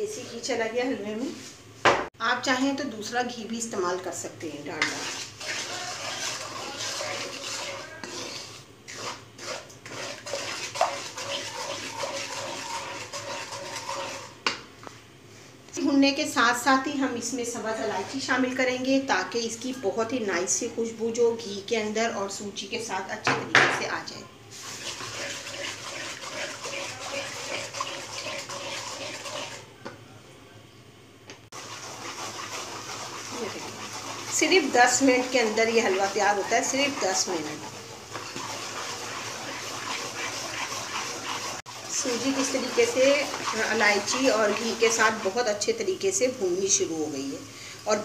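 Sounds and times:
wooden spatula scraping a pan: 0.0 - 1.6, 4.7 - 14.4, 24.5 - 29.7, 31.5 - 46.9
frying hiss: 3.4 - 15.5, 24.0 - 29.8, 31.4 - 48.0.

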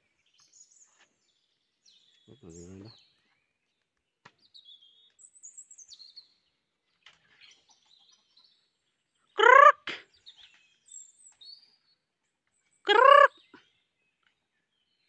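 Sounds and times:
small birds chirping: 0.0 - 15.0
chicken squawk: 9.4 - 10.0, 12.9 - 13.4.

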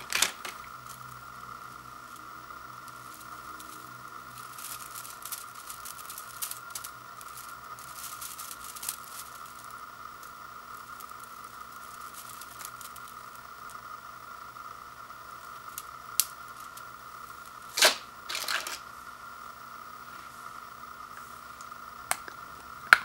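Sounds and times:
faint steady hum: 0.0 - 23.0
dried noodles crackling and snapping: 2.0 - 13.9, 15.4 - 18.8.

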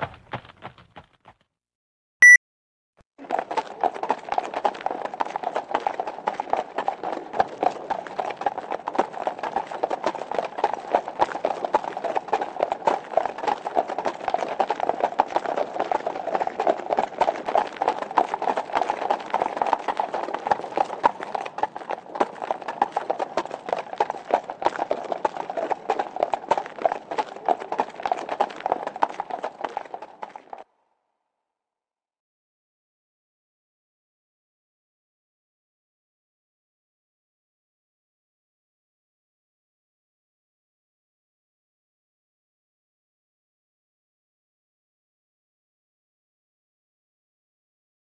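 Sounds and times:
horse hoofbeats clip-clop: 0.0 - 1.4, 3.2 - 30.6.

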